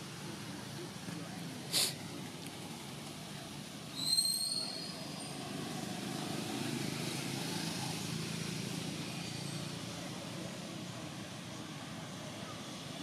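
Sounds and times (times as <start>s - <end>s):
distant traffic rumble: 0.0s - 13.0s
brief high squeal: 3.9s - 5.3s.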